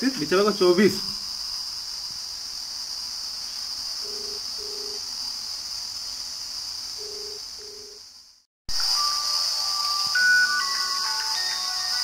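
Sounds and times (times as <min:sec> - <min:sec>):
crickets chirring: 0:00.0 - 0:12.0
telephone ringback tone: 0:04.1 - 0:05.0, 0:07.0 - 0:08.0, 0:09.0 - 0:12.0.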